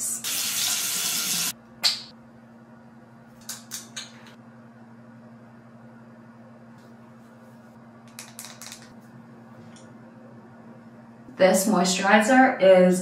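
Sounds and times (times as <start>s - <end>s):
sink tap running: 0.2s - 1.5s
steady low hum: 1.5s - 13.0s.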